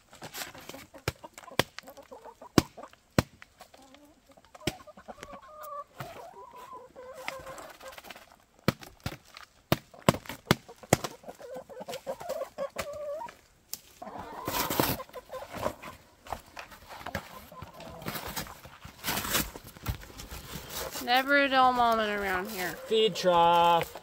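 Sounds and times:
chickens clucking: 0.1s - 8.6s, 9.7s - 21.0s, 21.6s - 24.0s
foil pouches crinkling: 18.0s - 24.0s.

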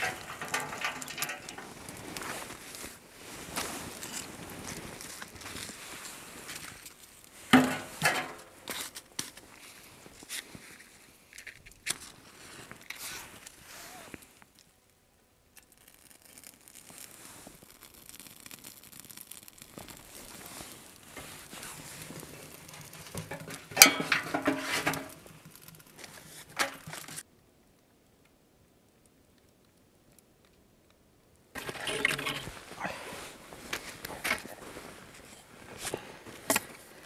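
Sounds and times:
plastic film crinkling and tearing: 0.0s - 7.4s, 15.6s - 23.8s, 24.6s - 27.2s.

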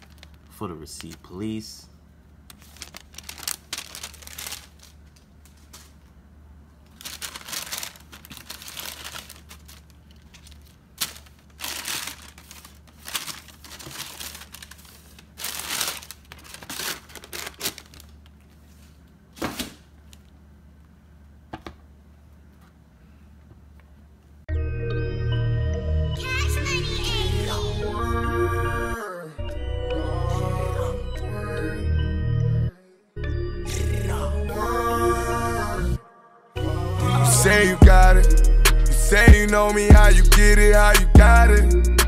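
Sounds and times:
tissue paper crinkling: 0.0s - 1.3s, 2.5s - 6.0s, 6.9s - 18.9s.

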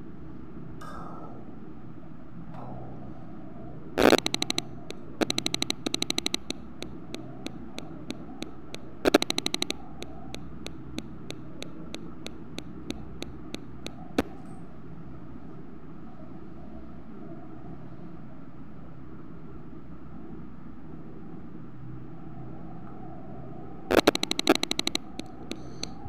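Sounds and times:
control panel clicks: 4.0s - 14.4s, 23.9s - 26.0s.

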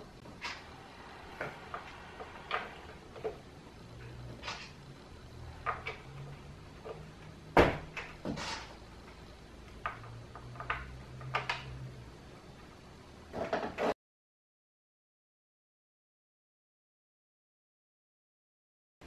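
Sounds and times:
plastic toy parts knocking and clicking: 9.8s - 11.7s.

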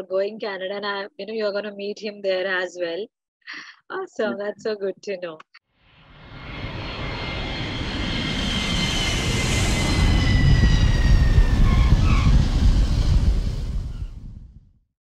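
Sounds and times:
jet airplane flyby: 5.8s - 14.5s
high whine sliding down: 5.9s - 14.6s.

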